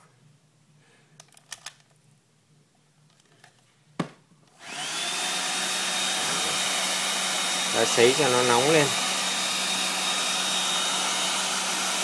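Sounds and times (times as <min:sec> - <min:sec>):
hair dryer air rushing: 0:04.6 - 0:12.0
hair dryer motor whine: 0:04.6 - 0:12.0.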